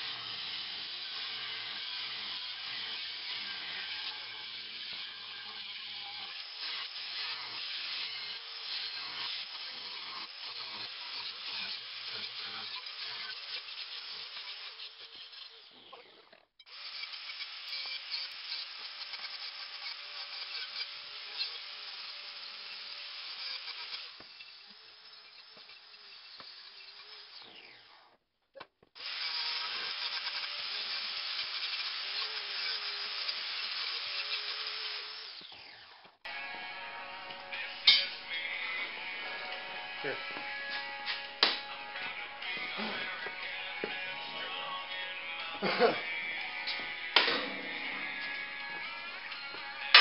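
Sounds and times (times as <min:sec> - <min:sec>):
angle grinder cutting steel: 0:00.0 - 0:16.1, 0:16.7 - 0:28.1, 0:29.0 - 0:50.0.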